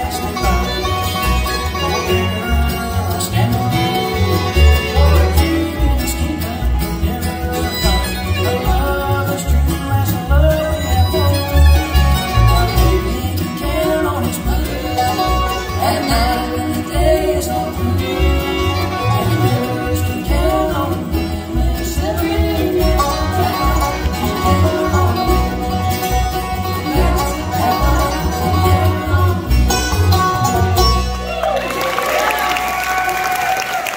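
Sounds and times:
fiddle: 0.0 - 33.8
bluegrass band playing: 0.0 - 33.9
upright bass: 0.0 - 33.9.

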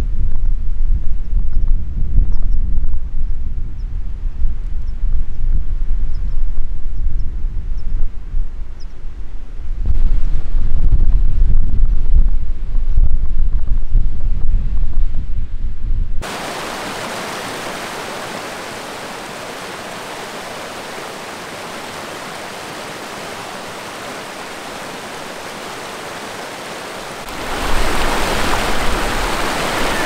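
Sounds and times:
wind buffeting microphone: 0.0 - 30.0
mountain stream rushing: 16.2 - 30.0.

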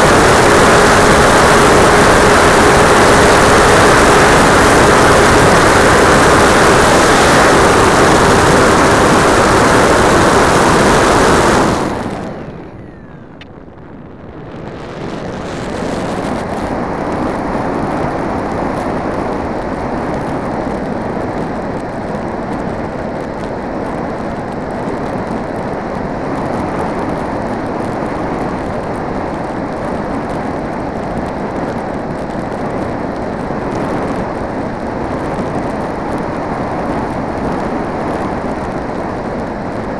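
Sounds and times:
model plane motor whining: 0.0 - 13.4
air rushing over plane: 0.0 - 39.9.

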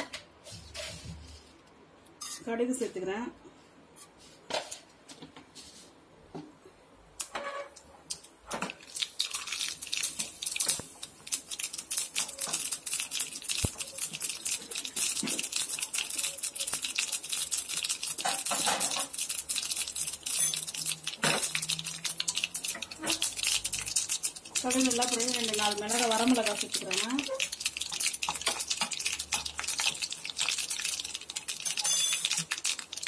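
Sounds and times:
seeds sizzling and popping in oil: 8.1 - 33.0.

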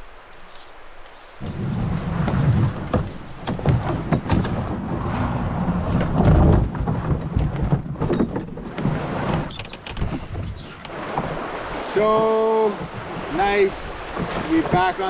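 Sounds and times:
rustling in brush: 0.3 - 4.1
canoe knocks and thumps: 1.4 - 15.0.

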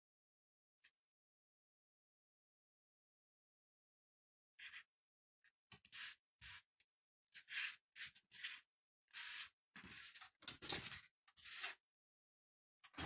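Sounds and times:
paper rustling and scraping: 7.4 - 11.8.

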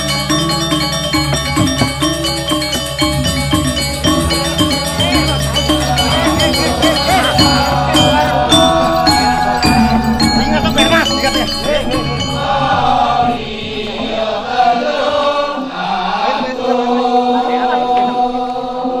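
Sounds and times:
sharp metallic clinks: 0.0 - 13.2
chorus chanting in unison: 3.1 - 19.0.

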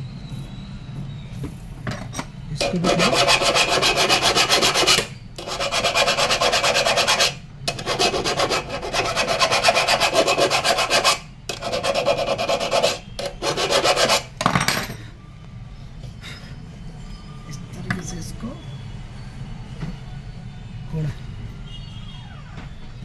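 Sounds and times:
file rasping on metal pipe: 2.6 - 14.3.

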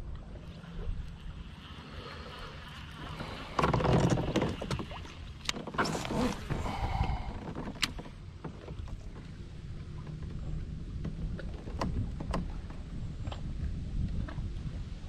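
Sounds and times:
clattering and rustling in kayak: 2.5 - 15.0
fishing gear clicks and knocks: 3.5 - 9.4.

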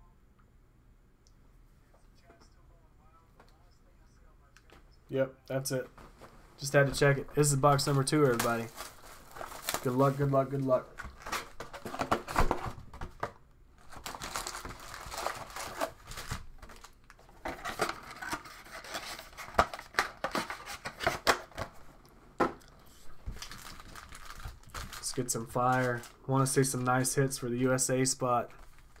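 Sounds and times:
foil packs crinkling: 7.7 - 13.0, 13.8 - 21.7, 23.3 - 26.8
plastic shrink wrap tearing: 13.8 - 21.3, 23.3 - 26.2.

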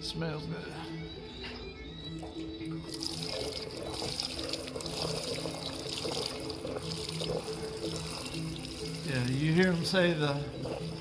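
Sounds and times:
gasoline pouring into plastic pan: 2.9 - 11.0.

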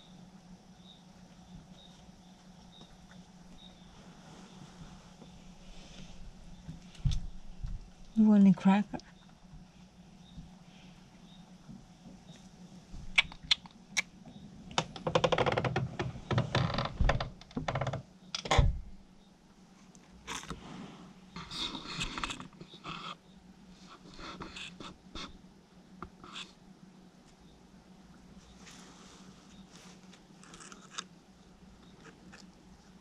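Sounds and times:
faint steady hum: 0.0 - 33.0
raccoon chewing and crunching: 21.4 - 23.2, 29.5 - 33.0.

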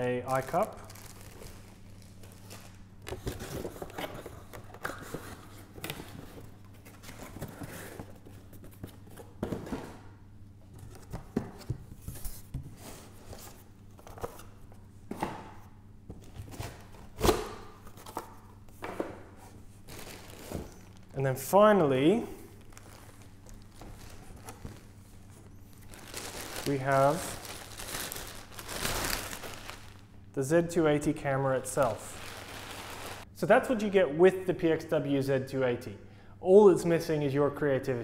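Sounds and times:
faint hum: 0.0 - 38.0
plastic bag rustling: 0.3 - 2.8, 19.8 - 21.2, 22.4 - 30.1, 31.6 - 33.3.

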